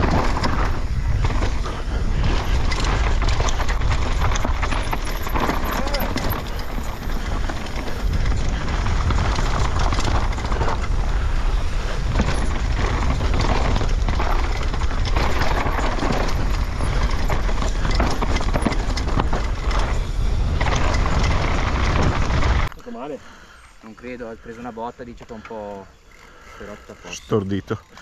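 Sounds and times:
wind rumble on microphone: 0.0 - 22.7
bike chain and frame clatter: 0.0 - 28.0.

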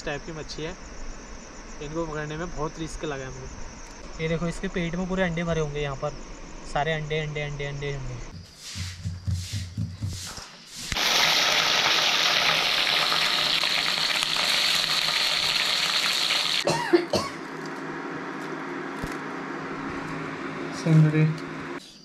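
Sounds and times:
breathy coughs: 16.6 - 17.4.

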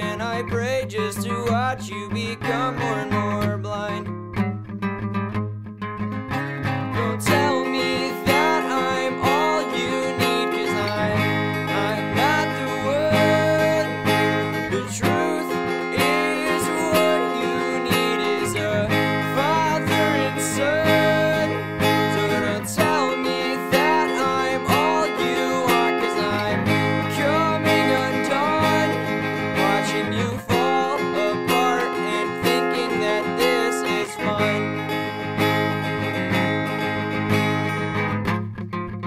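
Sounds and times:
strummed acoustic guitar: 0.0 - 39.0
sliding melody notes: 6.7 - 36.6.

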